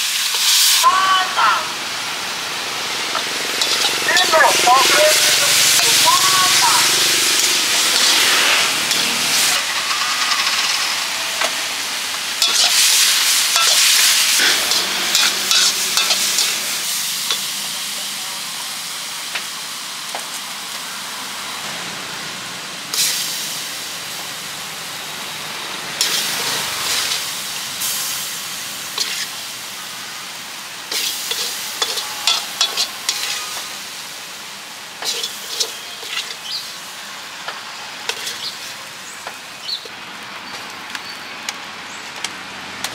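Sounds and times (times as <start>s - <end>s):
noodles sizzling in a wok: 0.0s - 42.9s
metal spatula scraping wok: 2.8s - 11.8s, 12.4s - 17.5s, 26.0s - 28.2s, 28.8s - 29.5s, 30.9s - 34.2s, 35.0s - 36.7s, 38.0s - 38.8s.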